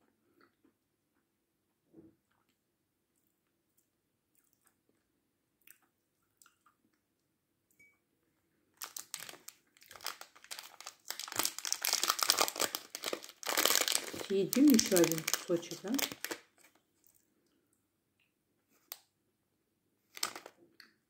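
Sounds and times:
plastic candy wrapper crinkling: 0:08.8 - 0:17.3, 0:20.1 - 0:20.7.

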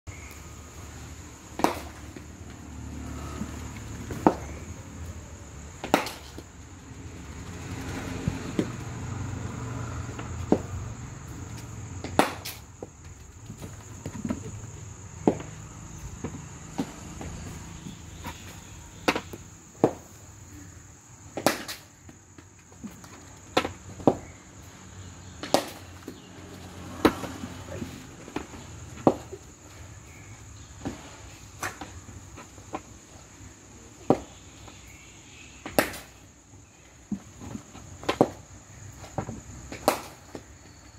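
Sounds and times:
high insect drone: 0:00.1 - 0:40.9
cricket ball knocking off bat: 0:01.5 - 0:02.2, 0:03.7 - 0:04.7, 0:05.8 - 0:06.5, 0:12.0 - 0:12.6.

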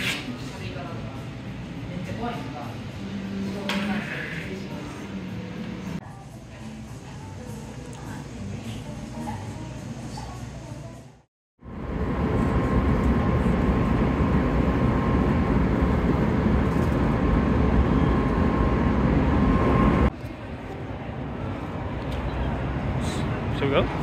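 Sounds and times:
train rumbling: 0:11.6 - 0:20.1.

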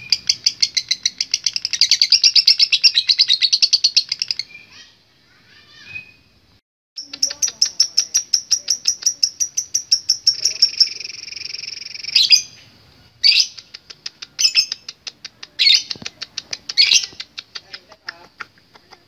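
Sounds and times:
lovebird rapid chirps: 0:00.0 - 0:04.9, 0:07.0 - 0:19.0
bird harsh squawks: 0:04.5 - 0:06.2.

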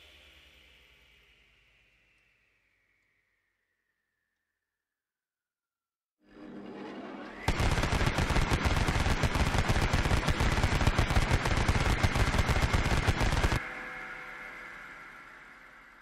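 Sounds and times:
machine gun whine: 0:07.4 - 0:13.7
rotary machine gun firing: 0:07.5 - 0:13.6.

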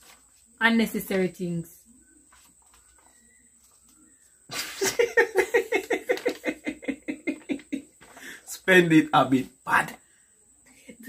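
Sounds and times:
woman laughing hard: 0:04.5 - 0:07.9.

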